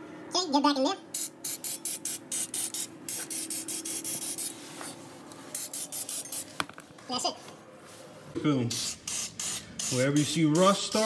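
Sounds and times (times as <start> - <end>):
aerosol can spraying: 1.2 - 4.6, 5.5 - 6.6.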